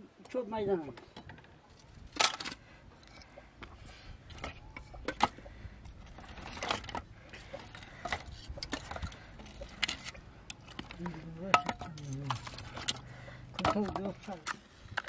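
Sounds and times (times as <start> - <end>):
wooden sticks knocking and clattering: 4.3 - 15.0.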